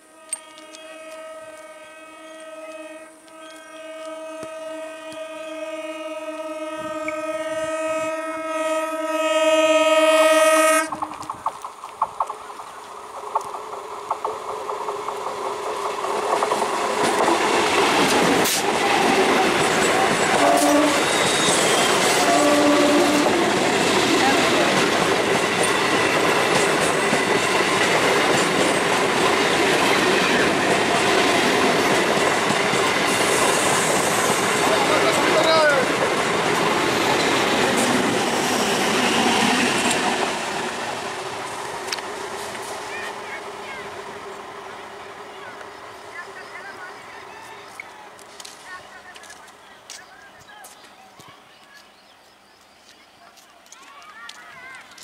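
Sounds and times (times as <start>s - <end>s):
train horn: 0.0s - 11.3s, 20.1s - 23.6s
train wheels clattering on rails: 10.8s - 43.4s
wheels clattering over rail joints: 10.9s - 21.5s.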